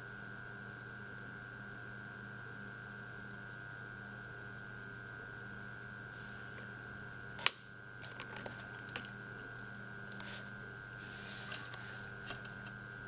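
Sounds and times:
electrical hum with high whine: 0:00.0 - 0:13.0
sharp click: 0:07.4 - 0:07.6
soft rustles: 0:10.1 - 0:12.7.

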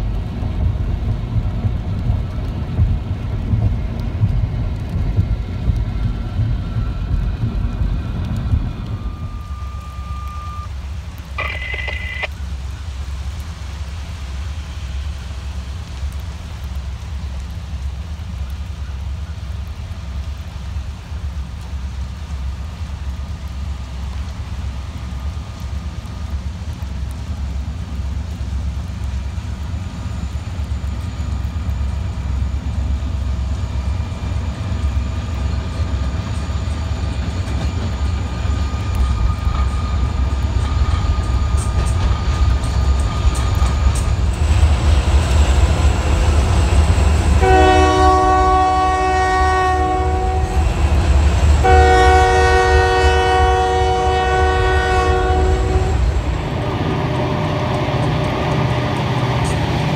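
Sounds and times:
freight train rumbling past: 0:00.0 - 0:11.4, 0:12.0 - 0:59.9
locomotive horn blasts: 0:47.4 - 0:50.6, 0:51.6 - 0:56.3.

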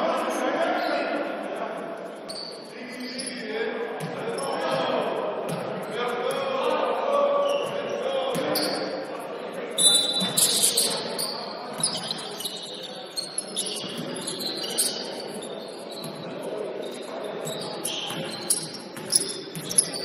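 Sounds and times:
murmur of voices in hall: 0:00.0 - 0:20.0
sneakers squeaking on court: 0:02.3 - 0:03.4, 0:07.4 - 0:09.1, 0:09.7 - 0:20.0.

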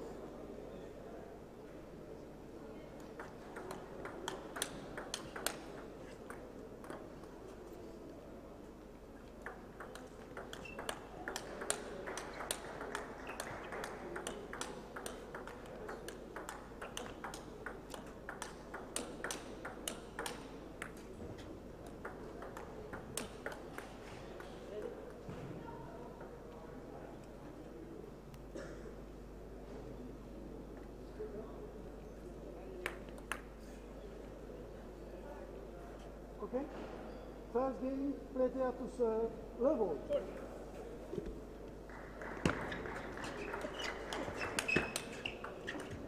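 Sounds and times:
low hall murmur: 0:00.0 - 0:46.0
table tennis ball clicking: 0:03.2 - 0:07.1, 0:09.4 - 0:21.1, 0:21.9 - 0:24.6.

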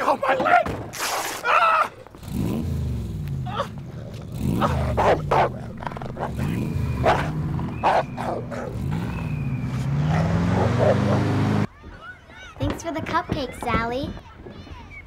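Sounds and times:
large dog growling: 0:03.6 - 0:09.0.

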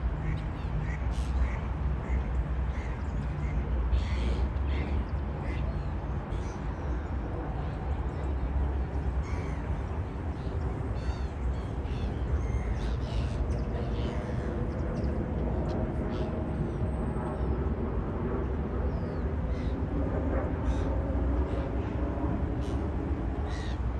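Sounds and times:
gulls calling: 0:18.8 - 0:23.9.

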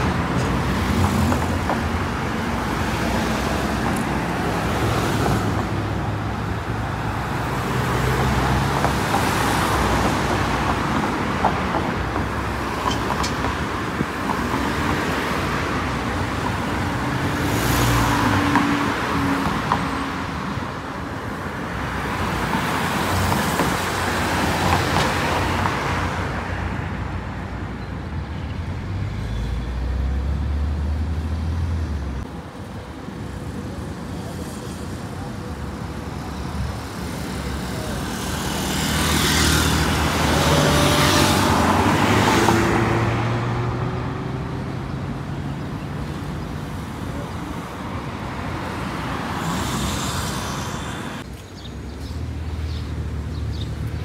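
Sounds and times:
cars driving past: 0:37.3 - 0:51.4.

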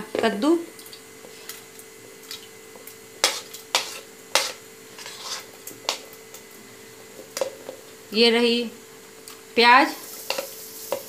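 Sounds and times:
spoon clinking and scraping plate: 0:03.2 - 0:06.1, 0:10.2 - 0:11.0.

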